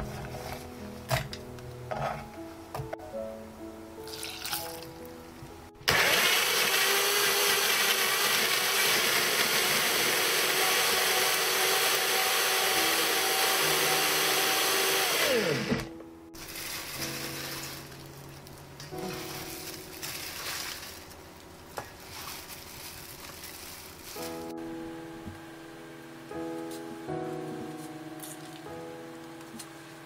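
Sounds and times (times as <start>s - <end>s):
blender grinding food: 5.9s - 15.9s.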